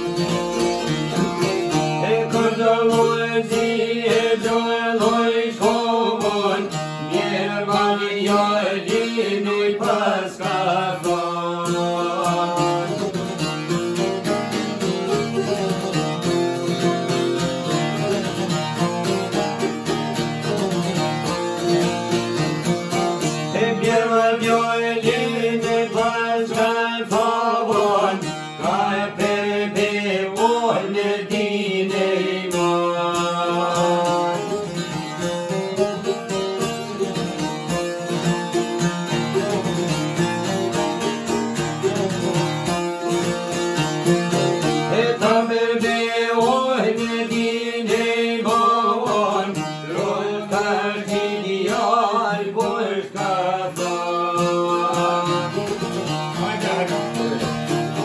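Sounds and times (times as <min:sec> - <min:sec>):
plucked string folk music: 0:00.0 - 0:58.0
man singing: 0:01.1 - 0:13.4, 0:22.9 - 0:34.8, 0:44.6 - 0:57.5.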